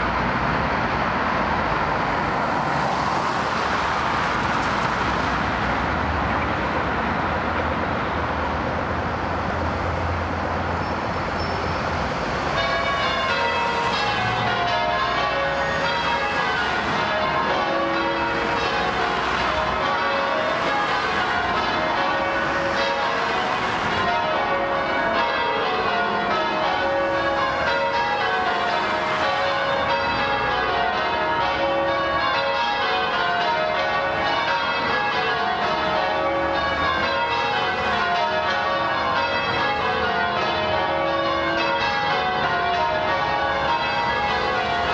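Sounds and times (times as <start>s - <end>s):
road traffic: 0.0s - 44.9s
church bells ringing: 10.9s - 44.9s.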